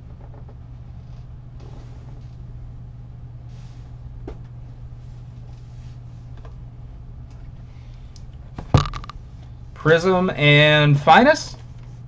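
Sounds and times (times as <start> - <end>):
low hum with faint hiss: 0.0 - 12.0.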